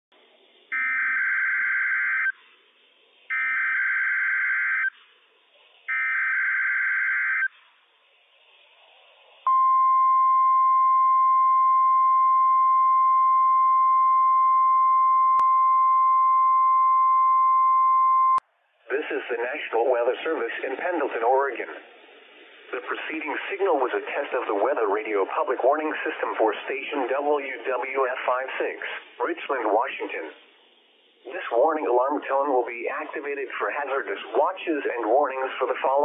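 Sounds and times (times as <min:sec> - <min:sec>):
steady alarm tone: 0:00.7 - 0:02.4, 0:03.3 - 0:04.9, 0:05.9 - 0:07.5.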